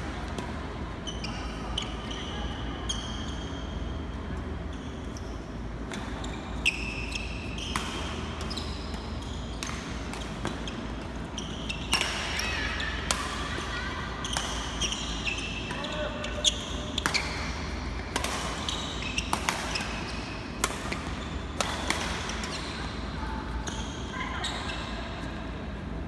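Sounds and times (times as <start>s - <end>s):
shoes squeaking on court: 1.0s - 13.1s, 14.2s - 23.0s
rackets hitting shuttlecock: 11.8s - 22.7s.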